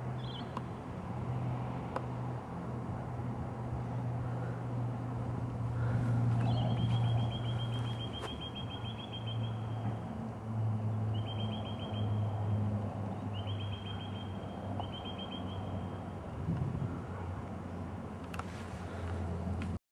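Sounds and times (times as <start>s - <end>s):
propeller plane droning: 0.0s - 19.8s
bird rapid high chirps: 6.4s - 9.6s, 13.4s - 15.6s.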